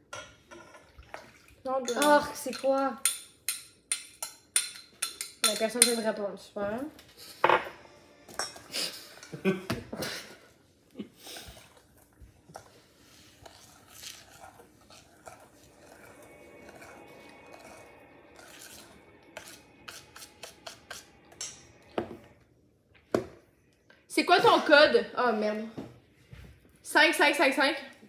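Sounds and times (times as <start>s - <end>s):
utensil scraping metal bowl: 12.5s - 22.3s.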